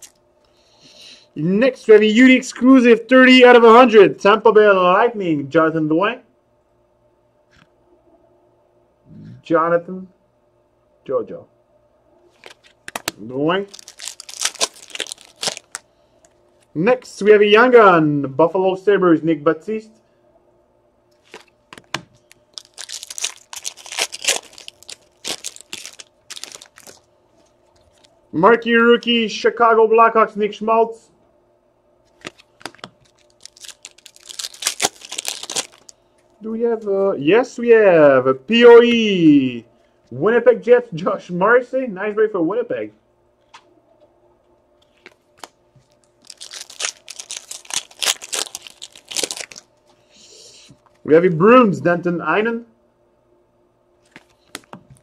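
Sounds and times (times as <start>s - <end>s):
foil wrapper tearing and crinkling: 12.4s - 15.8s, 22.3s - 27.1s, 32.2s - 36.0s, 45.4s - 49.7s.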